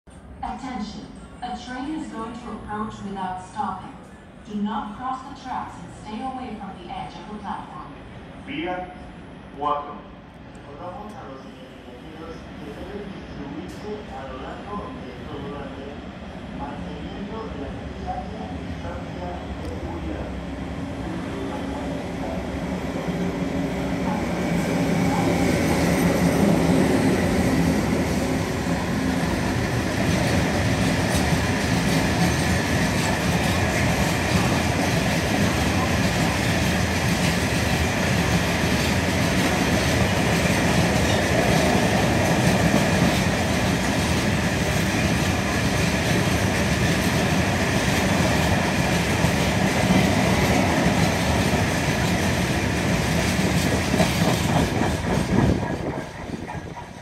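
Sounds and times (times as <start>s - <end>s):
electric locomotives passing: 0.1s - 57.0s
train wheels clattering on rails: 25.6s - 57.0s.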